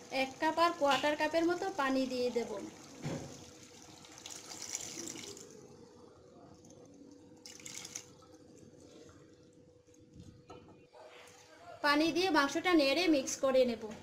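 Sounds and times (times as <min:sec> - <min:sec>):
water pouring into a pan: 0:00.0 - 0:05.7, 0:07.4 - 0:08.3.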